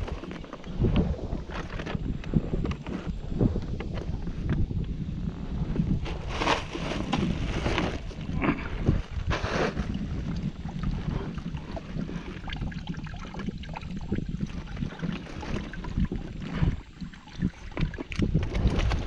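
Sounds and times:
water lapping at kayak: 0.0 - 19.0
wind buffeting microphone: 0.0 - 19.0.

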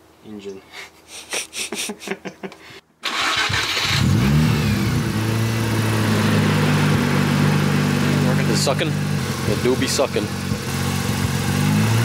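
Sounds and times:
man laughing: 0.7 - 2.8
rotary engine revving: 3.1 - 12.0.

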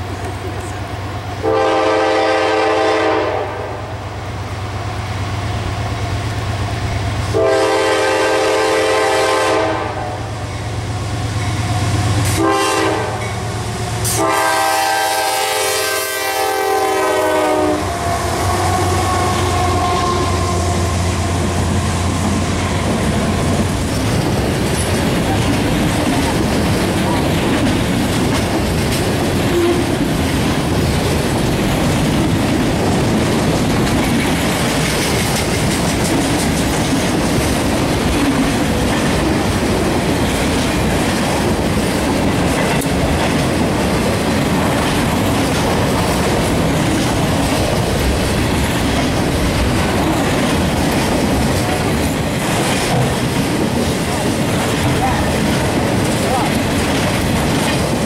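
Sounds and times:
freight train wheels rumbling: 0.0 - 58.0
wheels clicking over rail joints: 21.2 - 58.0.

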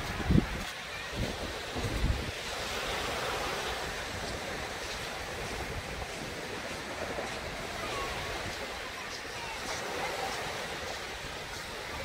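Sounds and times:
small waves washing onto beach: 0.0 - 12.0
wind rumbling on microphone: 0.0 - 12.0.

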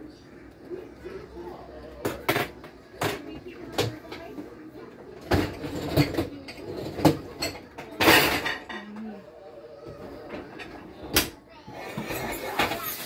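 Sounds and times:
kitchen knocks and clinks: 2.0 - 4.3, 5.2 - 9.1.

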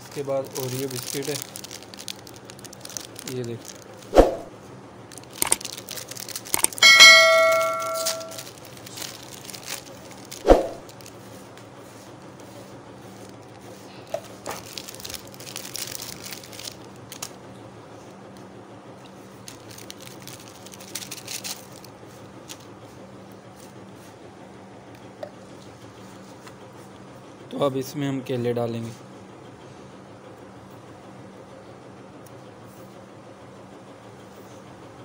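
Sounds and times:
rustling and handling noises: 0.0 - 4.4, 5.1 - 17.4, 19.0 - 24.2
bell ding: 6.8 - 8.4.

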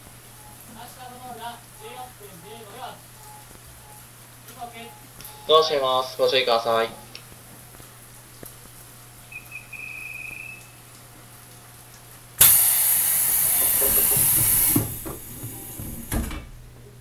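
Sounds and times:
compressed air hiss: 12.4 - 16.2
train doors thumping shut: 12.4 - 16.6.

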